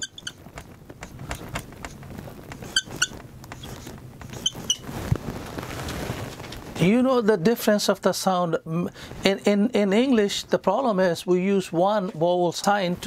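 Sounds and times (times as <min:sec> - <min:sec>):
marker scratching on whiteboard: 0:00.0 - 0:04.9
marker squeaks: 0:00.0 - 0:04.9.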